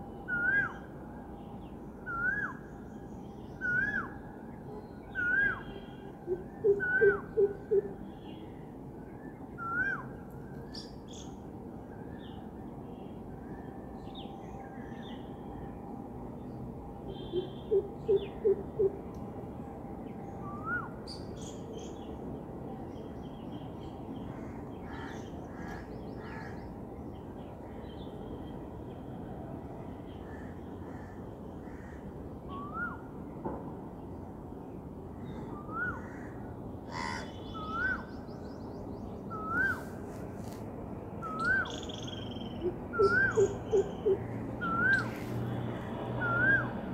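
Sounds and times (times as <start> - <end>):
outdoor background noise: 0.0 - 46.9
steady background noise: 0.0 - 46.9
birds chirping: 41.2 - 45.3.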